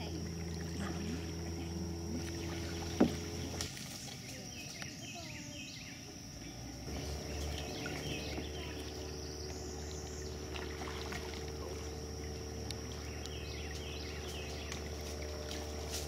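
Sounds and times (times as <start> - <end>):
low hum: 0.0 - 4.5, 5.7 - 16.0
insect drone: 0.0 - 16.0
bird chirps: 4.2 - 10.5, 12.8 - 15.8.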